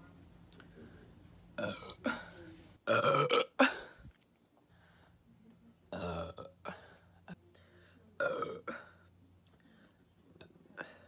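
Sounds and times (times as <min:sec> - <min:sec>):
woman burping: 0:01.6 - 0:02.3, 0:02.9 - 0:04.0, 0:05.9 - 0:06.8, 0:08.2 - 0:08.9.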